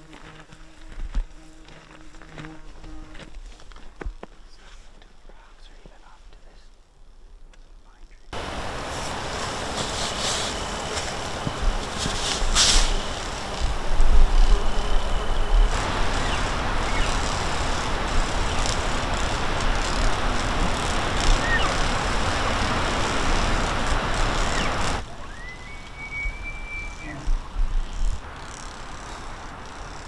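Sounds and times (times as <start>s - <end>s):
wind noise on microphone: 8.4s - 30.0s
distant elk bugling: 10.2s - 30.0s
short high whistle: 25.2s - 27.2s.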